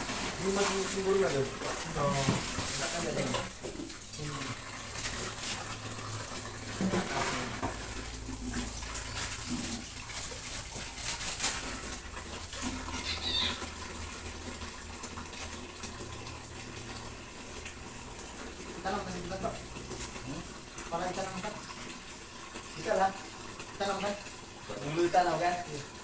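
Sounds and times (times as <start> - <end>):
water from hose into plastic basin: 0.0 - 26.0
animal cries: 12.8 - 13.8.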